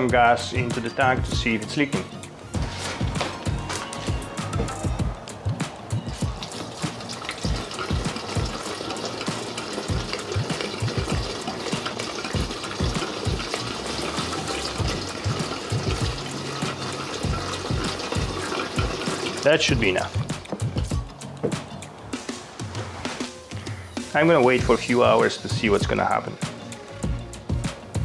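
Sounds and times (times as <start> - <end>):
gasoline pouring into plastic tank: 6.2 - 20.9.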